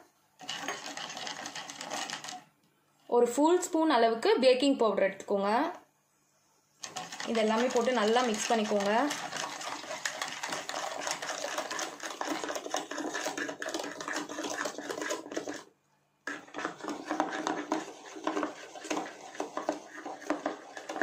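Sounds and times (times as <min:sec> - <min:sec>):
metal spoon beating batter in bowl: 0:00.4 - 0:02.5, 0:06.8 - 0:15.7, 0:16.3 - 0:21.0.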